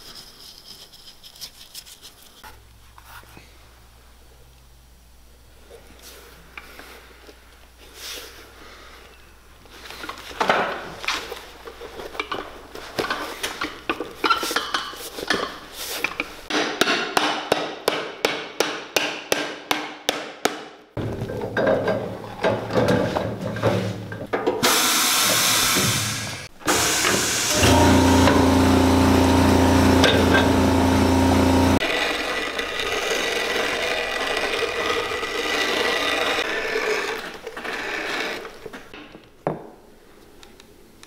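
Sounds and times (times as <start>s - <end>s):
shop machine rushing: 24.6s - 33.2s.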